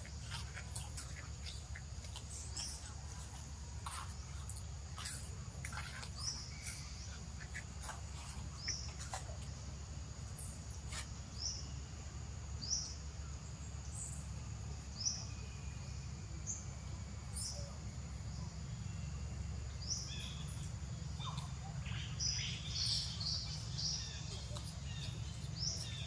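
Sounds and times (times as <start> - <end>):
bird chirping: 0.0 - 9.7, 14.9 - 26.0
insect drone: 0.0 - 26.0.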